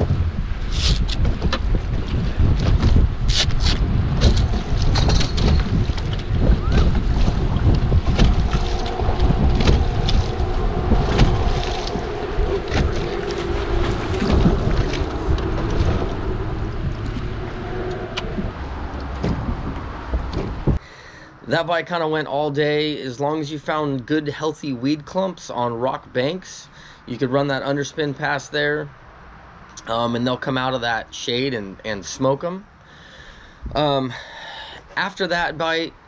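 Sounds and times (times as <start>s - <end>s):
wind buffeting microphone: 0.0s - 20.8s.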